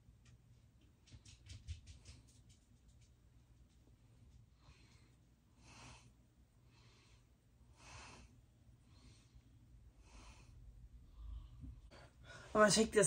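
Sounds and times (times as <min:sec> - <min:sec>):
faint breaths: 0:04.1 - 0:12.6.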